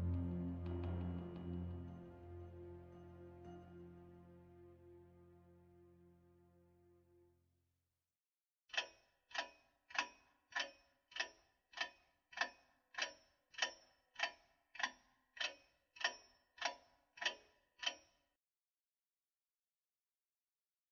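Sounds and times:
clock ticking: 8.7 - 18.2.

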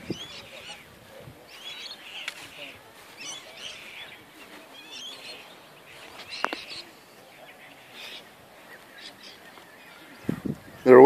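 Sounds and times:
birds chirping: 0.0 - 11.0
faint outdoor background noise: 0.0 - 11.0.

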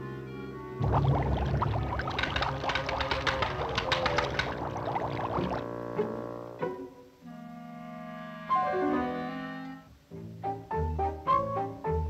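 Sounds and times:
low cello and bass notes: 5.2 - 12.0
orchestral cartoon music: 5.7 - 12.0.

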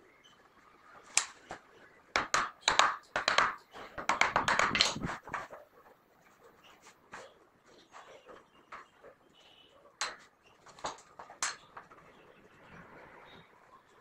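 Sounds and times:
chisel cracking through wood: 2.2 - 5.4
chisel knocking wood: 2.2 - 5.5.

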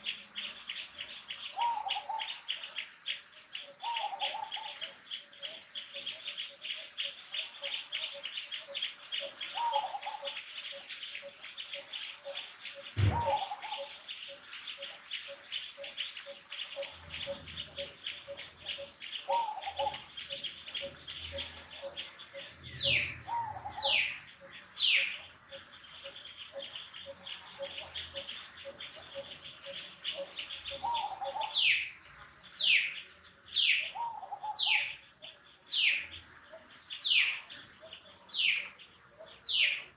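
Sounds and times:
birds chirping: 0.0 - 39.9
sharp thump: 13.0 - 13.4
low repeated bird note: 13.0 - 13.8.

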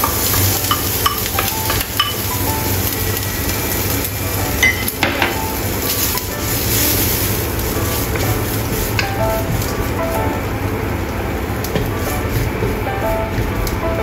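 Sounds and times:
wooden spatula knocking on pan: 0.0 - 2.5, 4.6 - 6.1
food sizzling in hot oil: 0.0 - 13.8.

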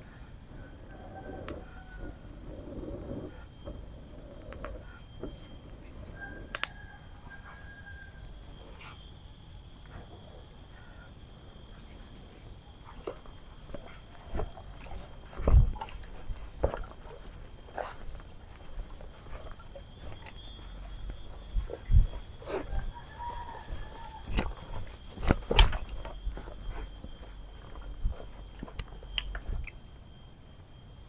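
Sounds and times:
insects chirping: 0.0 - 31.0
footsteps on grass: 13.0 - 29.7.

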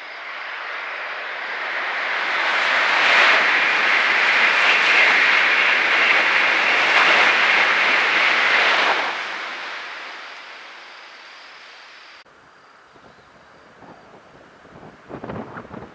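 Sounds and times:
bullet train rushing past: 0.0 - 11.9.

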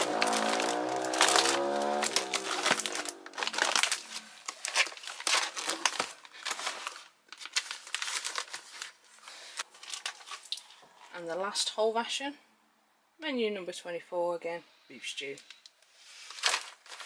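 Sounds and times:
ration pouches crinkling: 0.0 - 10.8, 15.5 - 17.0.

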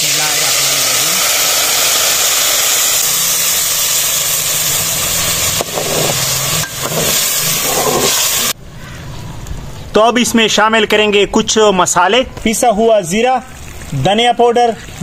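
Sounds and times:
paste sizzling in hot oil: 0.0 - 8.6.

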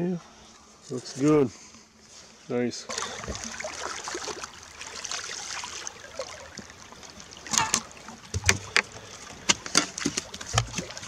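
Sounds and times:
wind: 0.0 - 11.0
water lapping: 2.9 - 11.0
fish thumping on deck: 7.4 - 11.0.

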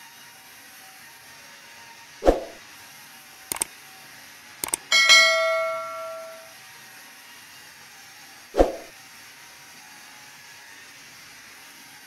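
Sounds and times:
light double clicks: 4.6 - 4.9
loud metallic clang: 4.6 - 6.5.

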